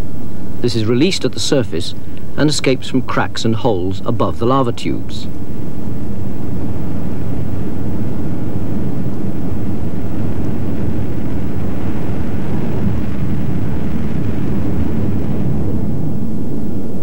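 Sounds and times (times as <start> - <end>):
gas rushing from vents: 5.4 - 16.9.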